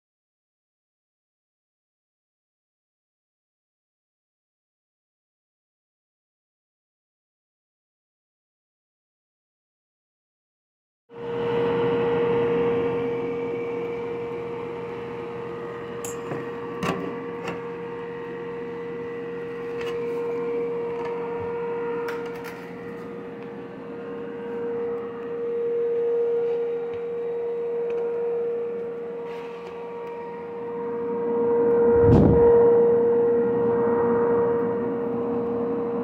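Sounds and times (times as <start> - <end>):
vent fan motor humming: 11.2 - 36.0.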